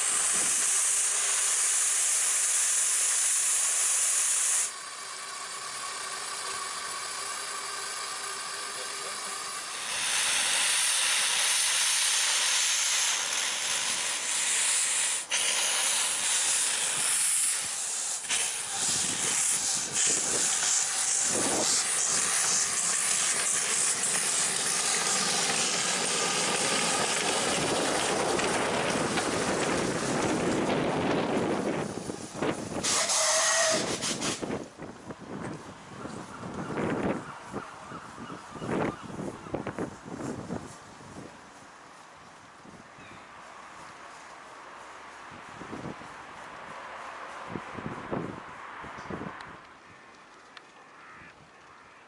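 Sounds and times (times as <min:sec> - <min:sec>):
steam hissing: 0:00.0 - 0:34.6.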